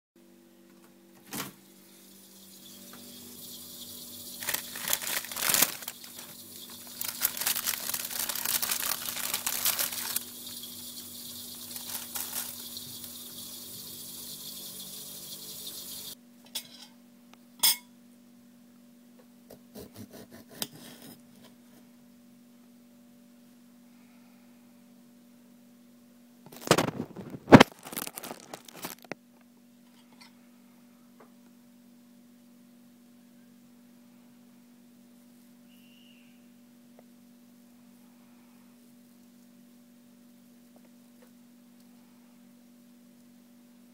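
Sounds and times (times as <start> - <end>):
low electrical hum: 0.2 - 43.9
plastic bag rustling: 4.2 - 13.5, 26.5 - 29.2.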